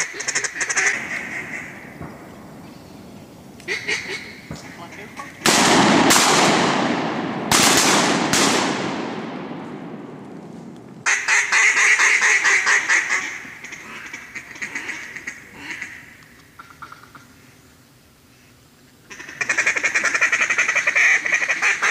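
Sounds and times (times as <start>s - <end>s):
mallard ducks quacking: 0.0s - 2.0s, 3.6s - 5.6s, 11.0s - 17.2s, 19.1s - 21.9s
shotgun shots: 5.4s - 10.3s.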